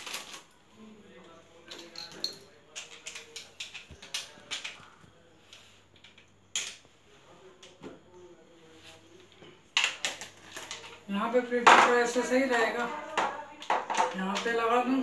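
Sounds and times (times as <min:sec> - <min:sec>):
plastic parts clicking and tapping: 0:01.7 - 0:06.9, 0:09.7 - 0:11.0, 0:13.0 - 0:14.8.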